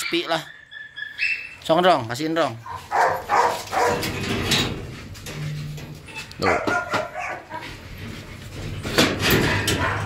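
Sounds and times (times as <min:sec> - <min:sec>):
large dogs barking: 0:02.6 - 0:04.2, 0:06.4 - 0:07.8, 0:09.2 - 0:10.0.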